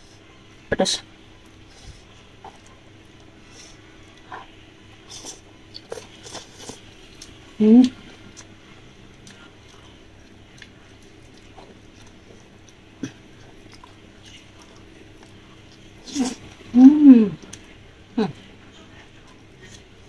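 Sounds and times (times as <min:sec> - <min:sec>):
soft chewing: 0:01.2 - 0:20.0
whine-like vocal sound: 0:16.1 - 0:17.4.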